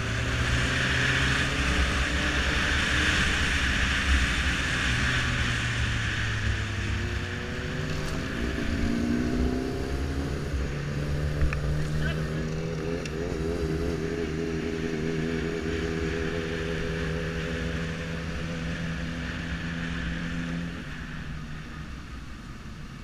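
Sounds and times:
motorcycle engine running: 0.0 - 22.8.

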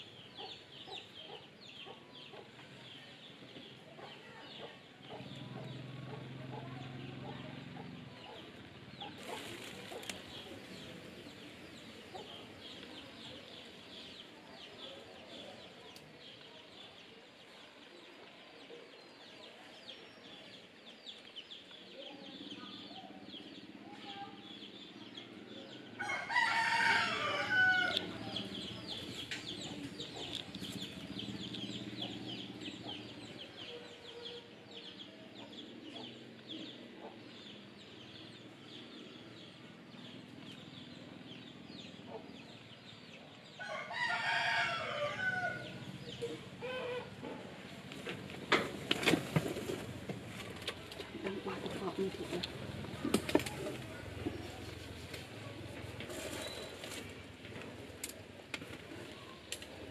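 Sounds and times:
rooster crowing: 26.0 - 28.0, 43.6 - 45.7.

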